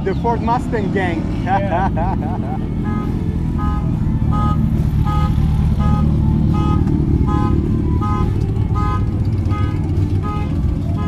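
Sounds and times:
motorcycle engines rumbling: 0.0s - 11.0s.

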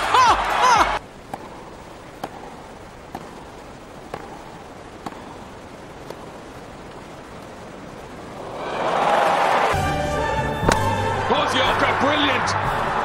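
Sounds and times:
racket striking tennis ball: 1.2s - 5.4s, 10.6s - 11.0s.

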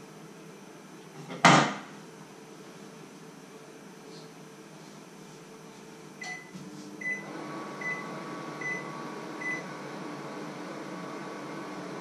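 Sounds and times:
microwave oven humming: 0.0s - 12.0s
microwave keypad beeps: 6.2s - 8.0s, 8.6s - 9.6s.

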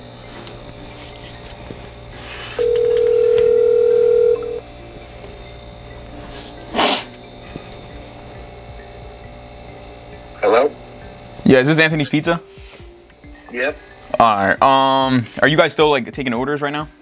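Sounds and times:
telephone ringback tone: 2.6s - 4.6s.

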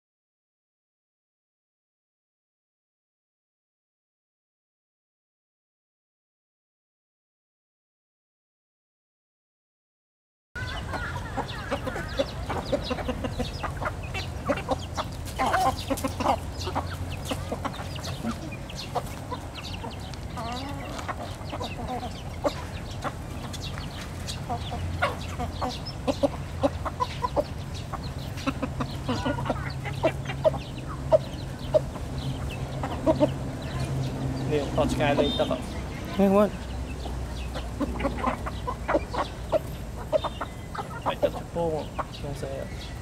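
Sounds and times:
beaks pecking feed: 10.6s - 43.0s
chickens clucking: 10.6s - 43.0s.

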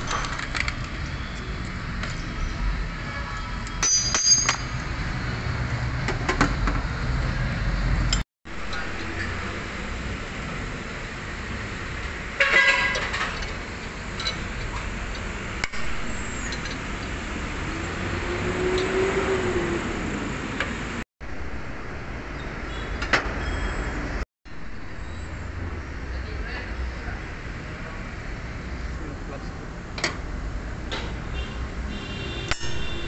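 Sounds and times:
workshop background noise: 3.6s - 17.2s.

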